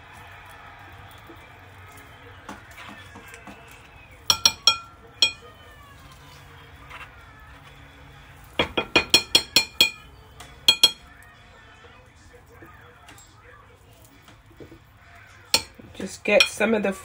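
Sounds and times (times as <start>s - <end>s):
metal spoon tapping ceramic bowl: 4.3s - 5.5s, 8.6s - 11.1s, 15.6s - 16.7s.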